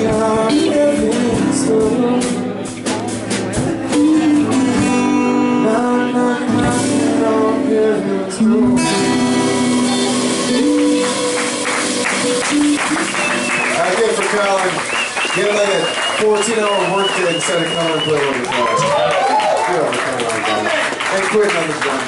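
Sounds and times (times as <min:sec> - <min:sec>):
drums with cymbal hits: 0:00.0 - 0:05.6, 0:06.5 - 0:07.3, 0:08.7 - 0:14.2
electric guitar: 0:00.0 - 0:16.0
acoustic guitar: 0:00.0 - 0:19.0.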